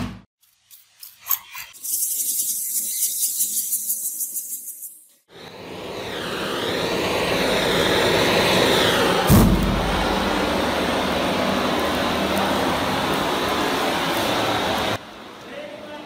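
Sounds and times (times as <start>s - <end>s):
roaring flames: 5.3s - 15.4s
loud fire whump: 8.0s - 11.2s.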